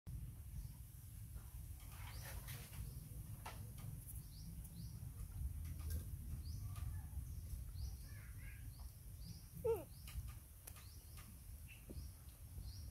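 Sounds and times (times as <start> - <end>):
bird chirping: 6.3 - 12.9.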